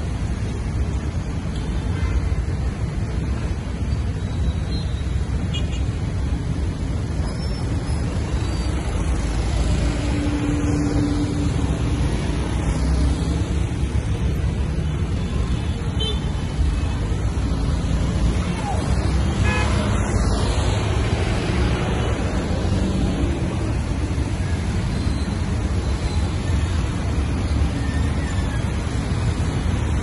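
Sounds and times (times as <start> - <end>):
motorbike and car engines passing: 16.4 - 30.0.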